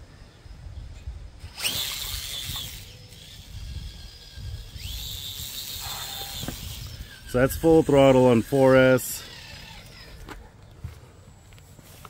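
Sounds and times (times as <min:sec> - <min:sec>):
electric motor whining: 0:01.4 - 0:10.4.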